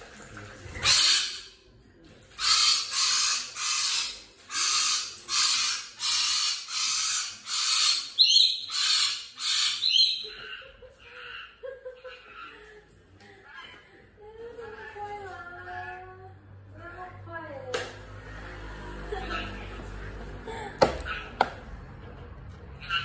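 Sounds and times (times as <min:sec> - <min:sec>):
parrot screeching: 0:00.8 - 0:01.5, 0:02.4 - 0:12.5, 0:21.0 - 0:21.3.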